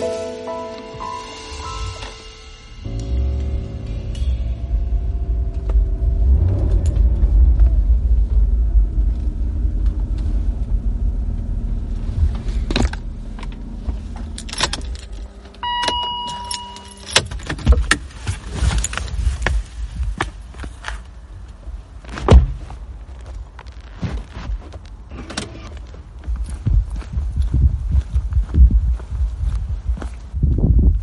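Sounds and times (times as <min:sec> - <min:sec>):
held tone: 0:01.1 - 0:07.1, 0:15.6 - 0:17.2
engine and road rumble: 0:01.2 - 0:31.0.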